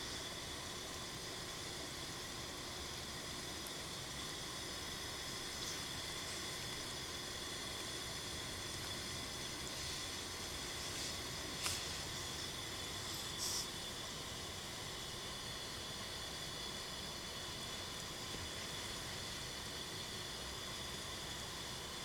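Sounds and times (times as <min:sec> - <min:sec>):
room heater hissing: 0:00.0 - 0:22.0.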